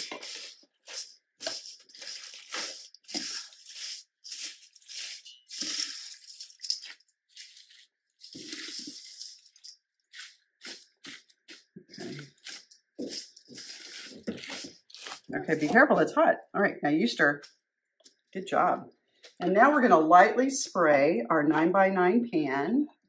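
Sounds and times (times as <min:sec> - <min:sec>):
spatula stirring crunchy mix in bowl: 0:00.0 - 0:16.1.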